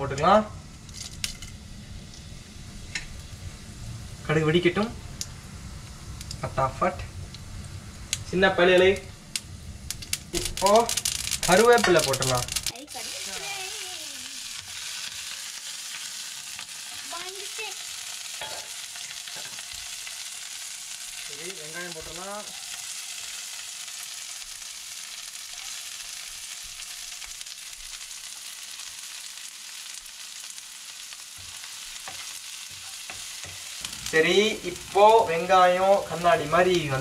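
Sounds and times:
vegetables sizzling in hot oil: 0.0 - 37.0
wooden spoon stirring in pan: 31.2 - 37.0.

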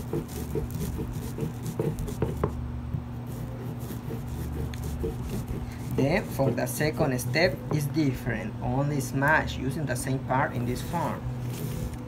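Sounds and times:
stone crushing cacao beans: 0.0 - 2.6, 3.3 - 7.9.

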